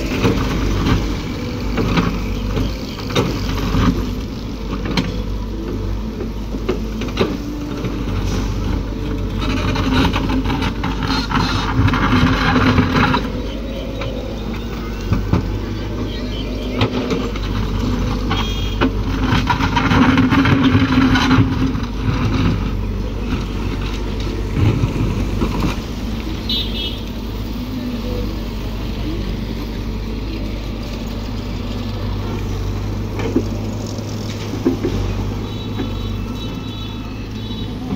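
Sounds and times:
heavy diesel engine humming: 0.0s - 37.9s
passing road traffic: 0.0s - 37.9s.

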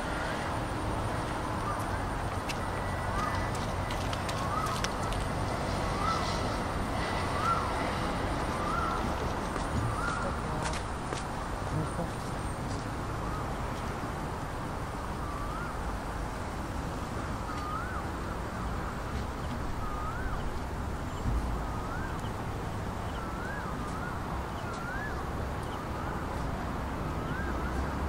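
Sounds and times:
city traffic hum: 0.0s - 28.0s
bird whistling rising note: 19.8s - 20.5s.

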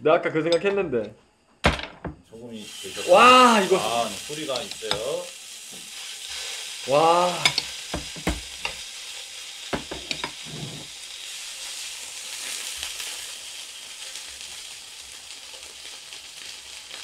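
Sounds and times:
beef sizzling in frying pan: 2.4s - 17.0s
metal tongs clicking on pan: 4.5s - 5.1s, 7.4s - 7.7s.

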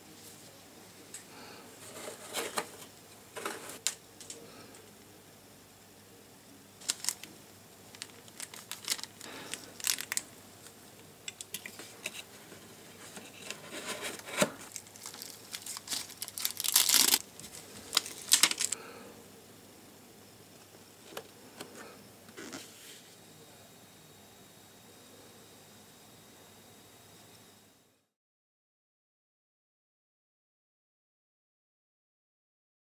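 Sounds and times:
cardboard scraping and rustling: 1.8s - 3.9s, 11.8s - 18.8s, 22.3s - 23.1s.

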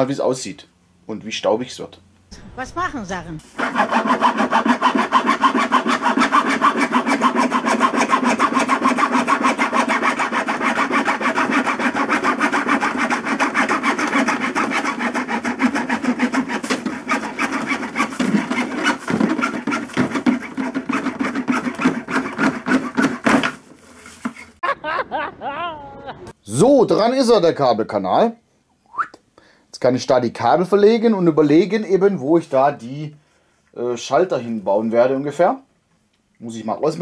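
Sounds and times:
hacksaw cutting plastic: 3.4s - 24.6s.

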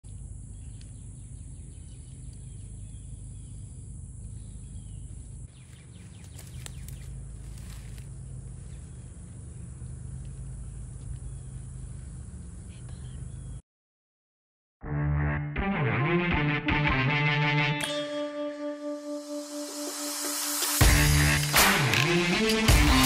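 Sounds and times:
high insect drone: 0.1s - 12.8s
crackling and rustling: 5.6s - 9.4s.

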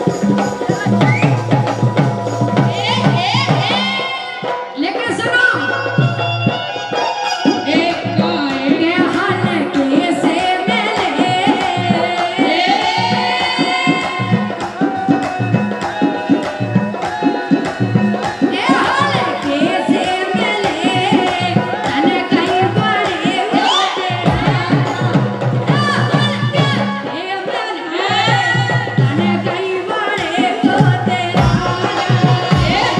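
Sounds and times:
hand drum rhythm: 0.0s - 32.9s
woman singing: 0.0s - 32.9s
man singing: 31.2s - 32.9s.

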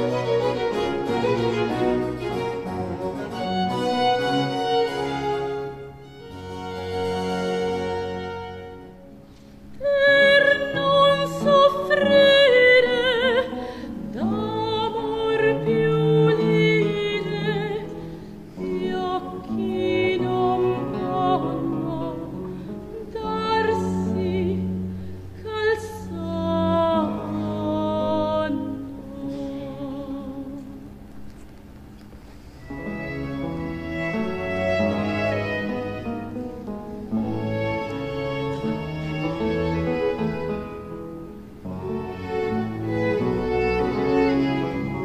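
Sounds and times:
string ensemble: 0.0s - 45.0s
woman singing opera: 9.7s - 31.0s.

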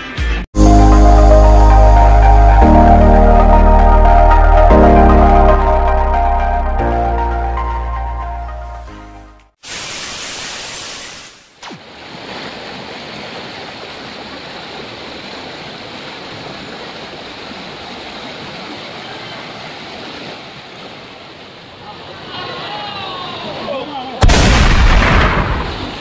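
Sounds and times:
intro music: 0.6s - 9.5s
loud hiss: 9.6s - 11.6s.

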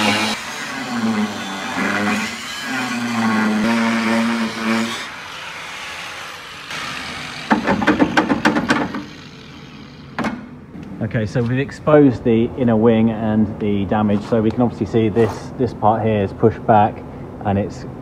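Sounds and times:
angle grinder cutting steel: 0.0s - 10.2s.

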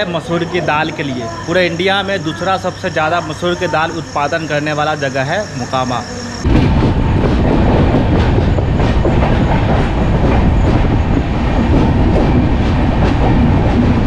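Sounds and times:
train rumble: 0.0s - 14.0s
train wheels clattering over rail joints: 6.5s - 14.0s.

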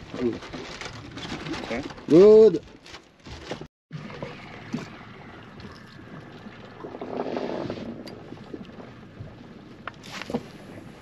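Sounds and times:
wind and water rushing: 3.9s - 11.0s.

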